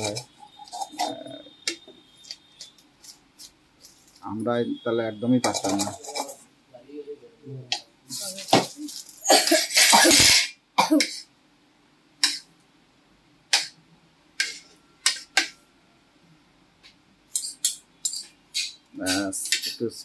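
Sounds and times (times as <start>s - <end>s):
spoons clinking on a ceramic plate: 5.4s - 6.4s, 17.3s - 18.7s.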